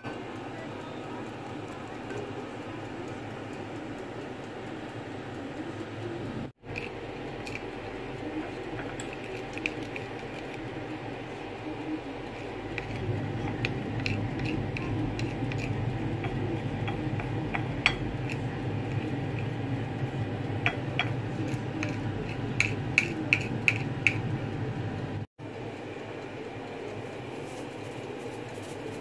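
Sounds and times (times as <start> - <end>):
steady low hum: 0.0 - 29.0
spoon stirring batter: 6.6 - 24.4
spoon clinking on plate: 12.7 - 19.4, 20.6 - 24.2.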